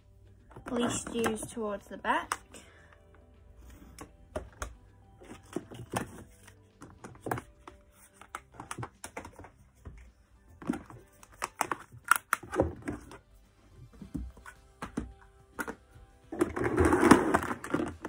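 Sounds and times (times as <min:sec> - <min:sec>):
soft background music: 0:00.0 - 0:18.0
makeup compacts clacking: 0:00.5 - 0:02.6, 0:04.0 - 0:13.2.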